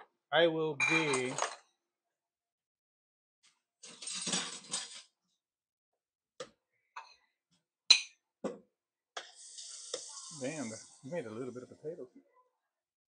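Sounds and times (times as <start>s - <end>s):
dishes and utensils clinking: 0.8s - 1.6s, 3.9s - 5.1s.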